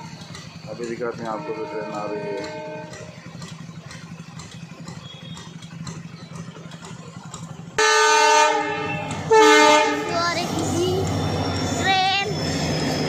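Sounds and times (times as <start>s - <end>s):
low engine hum: 0.0s - 13.0s
locomotive horn blast: 0.8s - 3.2s, 7.8s - 10.2s.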